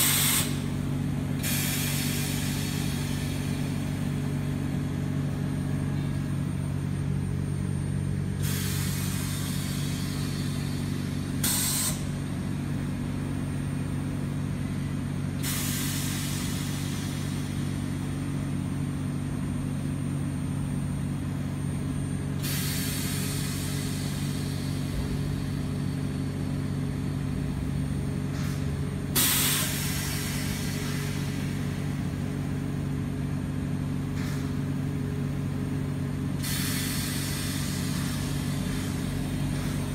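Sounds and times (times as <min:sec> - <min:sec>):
hissing gas releases: 0:00.0 - 0:00.7, 0:01.4 - 0:03.8, 0:08.4 - 0:12.1, 0:15.4 - 0:17.6, 0:22.4 - 0:25.0, 0:28.3 - 0:31.8, 0:34.1 - 0:34.6, 0:36.4 - 0:39.9
low mechanical hum: 0:00.0 - 0:39.9.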